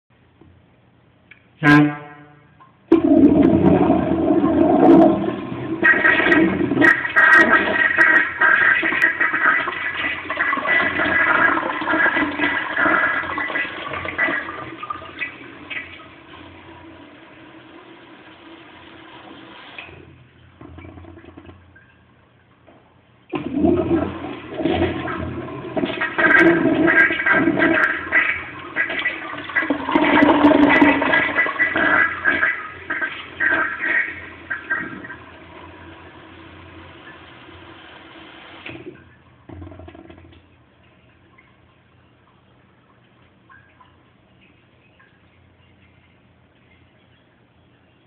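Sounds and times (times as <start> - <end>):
toilet flushing: 2.9 - 21.9, 23.3 - 41.4.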